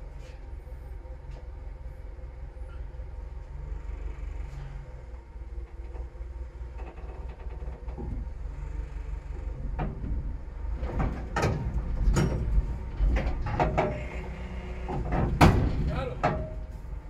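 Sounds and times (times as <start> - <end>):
engine running at low revs: 0.0 - 17.0
metal clanking and knocking: 5.7 - 8.4, 9.4 - 17.0.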